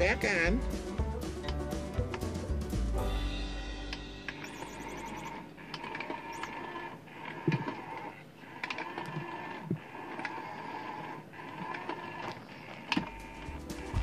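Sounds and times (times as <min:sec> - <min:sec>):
toy motor whirring: 0:04.4 - 0:13.5.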